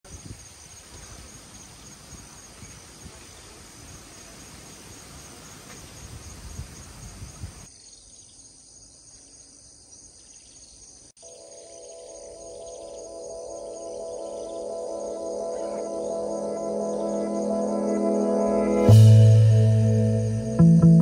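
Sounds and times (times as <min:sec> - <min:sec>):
insects chirring: 0:00.1 - 0:20.1.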